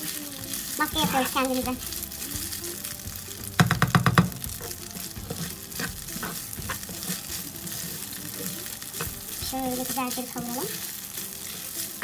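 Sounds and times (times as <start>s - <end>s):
rice sizzling in a pan: 0.0s - 12.0s
spatula scraping a pan: 0.0s - 12.0s
spatula knocking against pan: 3.1s - 7.9s.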